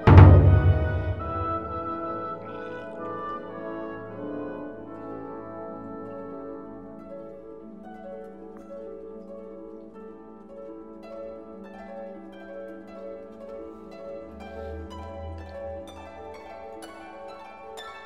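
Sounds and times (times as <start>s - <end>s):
low bass: 0.0s - 2.0s
plucked strings and harp melody: 0.0s - 18.0s.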